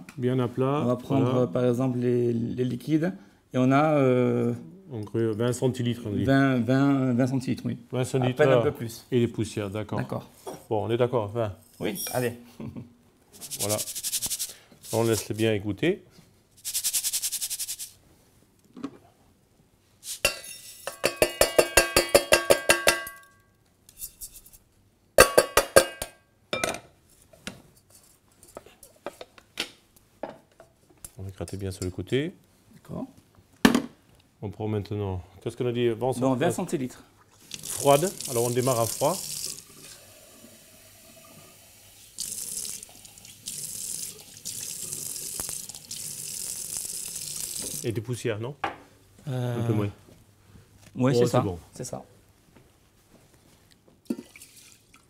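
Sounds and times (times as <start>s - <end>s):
metal strainer knocking on saucepan: 20.3s - 23.2s
tap water splashing into sink: 37.5s - 40.0s, 42.2s - 47.9s.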